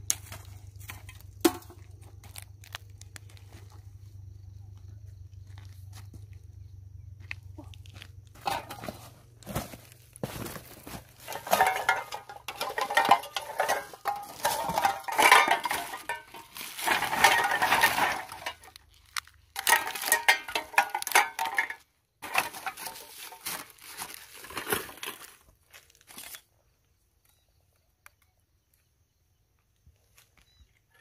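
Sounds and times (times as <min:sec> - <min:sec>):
tin cans and metal junk clattering: 0:00.1 - 0:02.4, 0:08.3 - 0:26.4.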